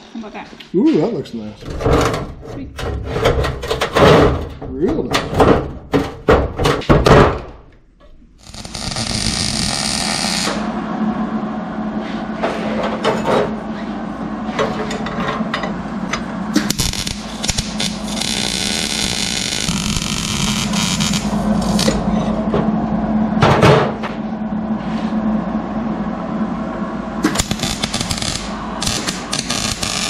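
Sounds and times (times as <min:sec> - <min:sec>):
welder hissing: 0:16.6 - 0:22.0, 0:27.2 - 0:30.0.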